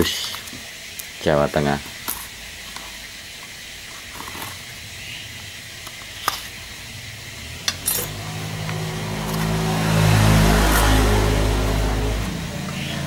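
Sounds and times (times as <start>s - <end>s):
steady hiss: 0.0s - 13.0s
vehicle engine: 4.1s - 13.0s.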